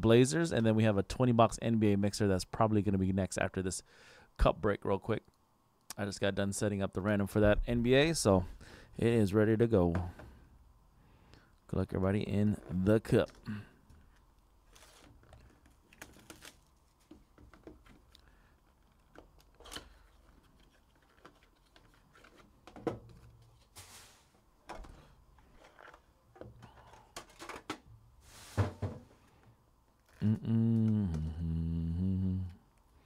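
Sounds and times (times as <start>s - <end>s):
shrink-wrap peeling and tearing: 14.6s - 16.8s
crinkles clicks and taps: 15.2s - 23.4s.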